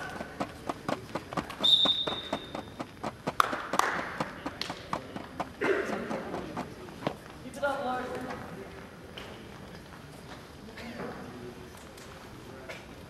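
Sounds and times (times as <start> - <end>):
short high whistle tone: 1.6 - 2.6.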